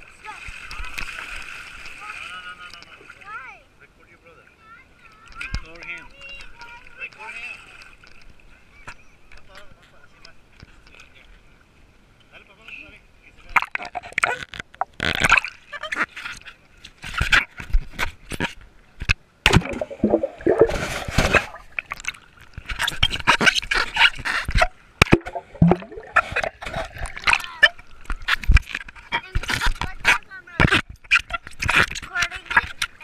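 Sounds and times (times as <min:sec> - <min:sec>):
water splashing and gurgling: 0:19.5 - 0:24.0, 0:25.0 - 0:28.8.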